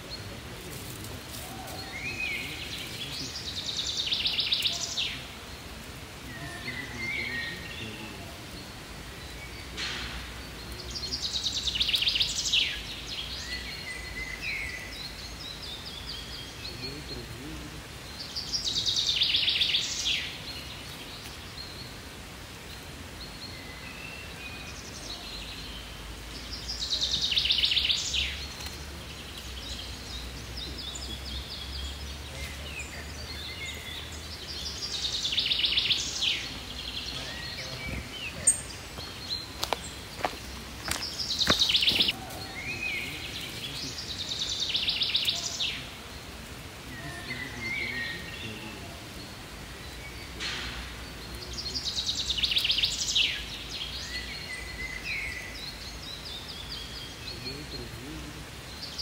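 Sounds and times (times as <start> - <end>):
outdoor background noise: 0.0 - 59.0
songbird trilling: 26.5 - 46.1, 46.9 - 57.6.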